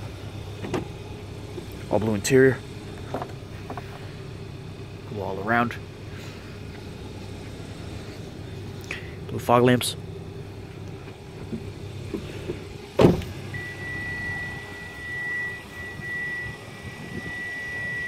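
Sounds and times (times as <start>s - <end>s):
car engine idling: 0.0s - 18.0s
car door shutting: 0.5s - 1.0s, 11.0s - 14.0s
steady high tone: 13.5s - 18.0s.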